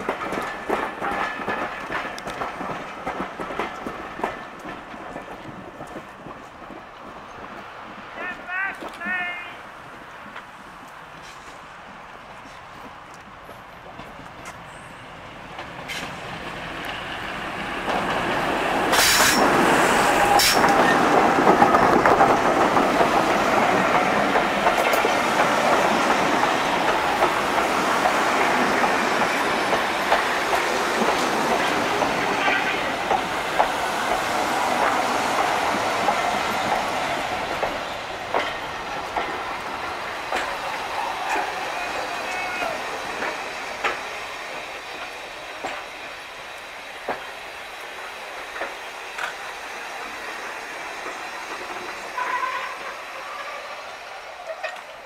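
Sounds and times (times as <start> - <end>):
wheels clicking over rail joints: 0.0 - 7.7, 15.5 - 49.5, 54.4 - 55.0
train rumble: 0.0 - 55.0.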